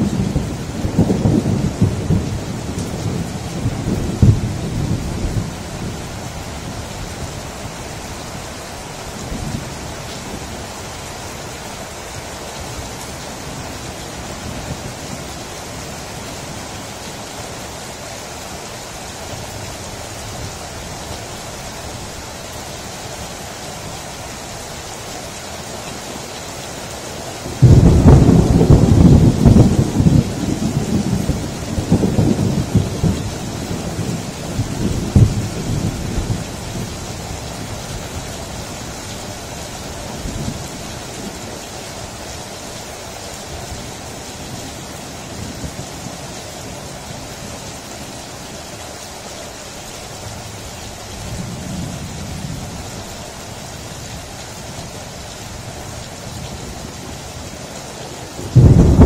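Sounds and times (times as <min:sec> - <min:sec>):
loud thunderclap: 0:00.0 - 0:05.5, 0:27.6 - 0:33.2, 0:33.8 - 0:36.4, 0:58.5 - 0:59.0
thunder rumbling: 0:00.0 - 0:08.6, 0:27.5 - 0:38.8, 0:58.4 - 0:59.0
rain falling: 0:00.0 - 0:59.0.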